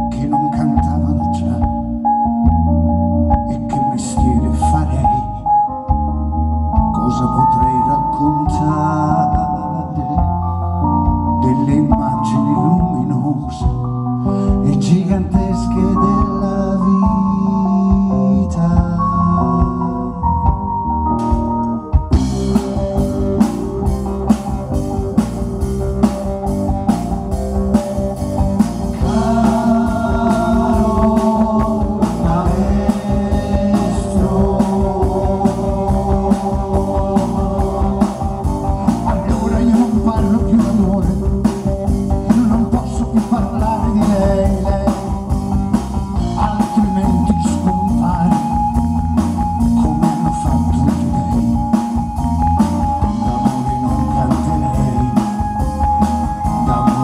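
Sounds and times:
electric bass guitar: 0:00.0 - 0:57.0
keyboards: 0:00.0 - 0:57.0
drum kit: 0:05.9 - 0:57.0
person singing: 0:06.9 - 0:10.5, 0:11.3 - 0:20.5, 0:28.9 - 0:57.0.

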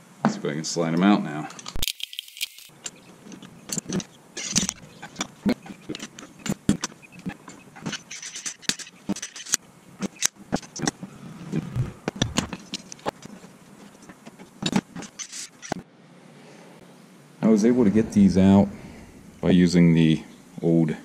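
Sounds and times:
metal tools clinking and knocking: 0:02.7 - 0:10.3.

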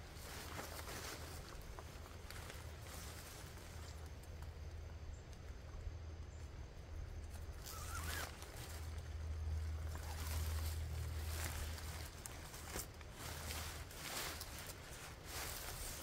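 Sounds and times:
tent fabric rustling: 0:00.0 - 0:03.8, 0:07.5 - 0:16.0
low hum: 0:00.0 - 0:16.0.

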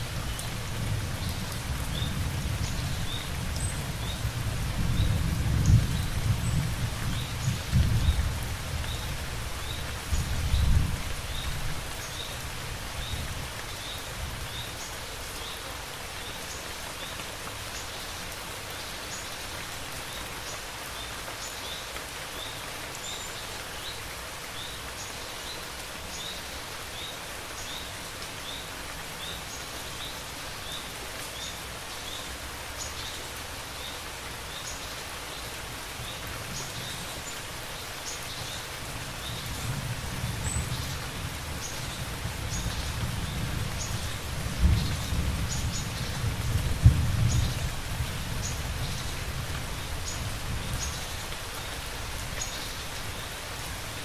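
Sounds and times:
steady rain: 0:00.0 - 0:54.0
low thunder rumble: 0:42.8 - 0:49.1.

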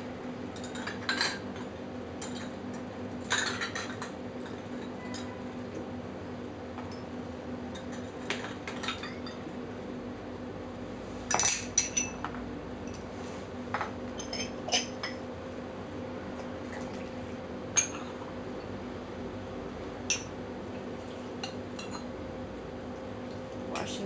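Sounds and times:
porcelain cups clinking: 0:11.3 - 0:12.2.

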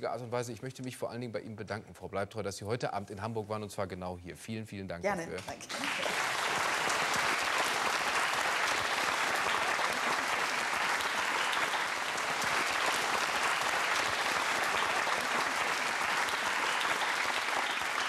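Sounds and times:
audience applauding: 0:05.6 - 0:18.0.

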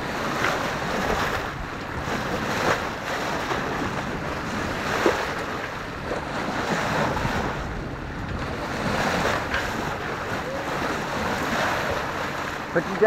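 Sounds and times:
sea water rushing and splashing: 0:00.0 - 0:13.0
wind buffeting microphone: 0:00.0 - 0:13.0.

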